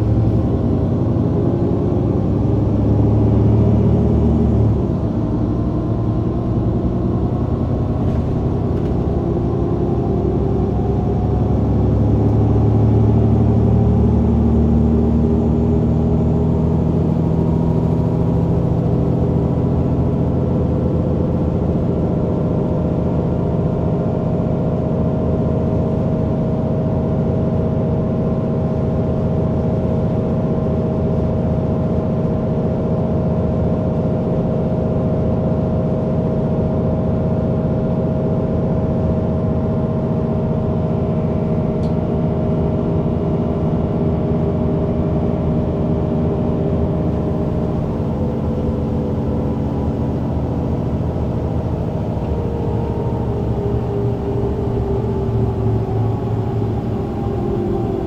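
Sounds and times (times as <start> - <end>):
bus diesel engine: 0.0 - 58.0
steady whine: 40.5 - 58.0.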